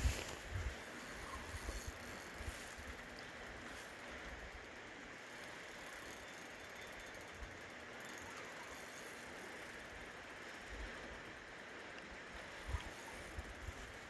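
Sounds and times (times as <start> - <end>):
fishing reel ticking: 0.0 - 14.0.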